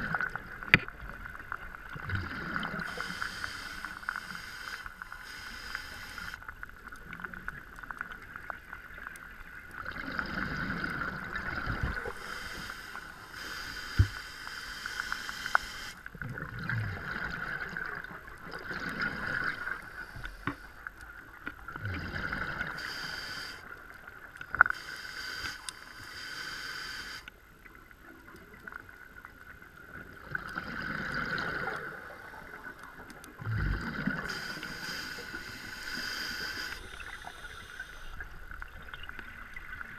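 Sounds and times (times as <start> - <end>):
bubbles gurgling underwater: 0.0 - 3.0, 7.0 - 12.1, 16.1 - 19.8, 30.0 - 32.6, 33.2 - 34.4
faint steady whine: 0.0 - 9.6, 10.9 - 16.2, 22.4 - 28.4, 31.8 - 39.9
diver breathing through regulator: 2.2 - 6.4, 12.0 - 16.0, 22.0 - 23.7, 24.7 - 27.3, 33.5 - 38.2.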